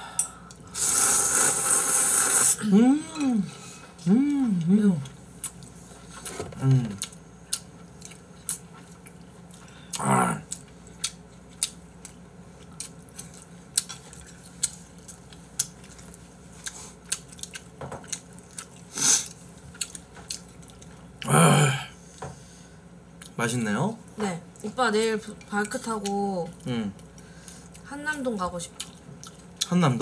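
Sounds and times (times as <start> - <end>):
chewing: 4.6 - 21.2, 28.7 - 29.8.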